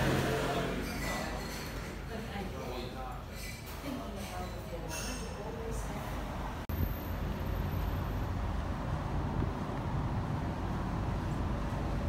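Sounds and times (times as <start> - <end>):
distant traffic: 5.3 - 12.0
wind rumble on microphone: 8.3 - 12.0.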